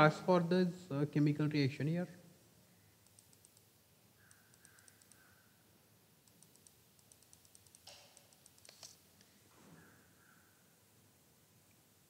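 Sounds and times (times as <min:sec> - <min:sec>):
low room hiss: 0:00.0 - 0:12.0
mouse scroll wheel ticking: 0:03.0 - 0:05.2, 0:06.2 - 0:09.0
mouse clicks: 0:03.0 - 0:05.3, 0:06.2 - 0:09.3.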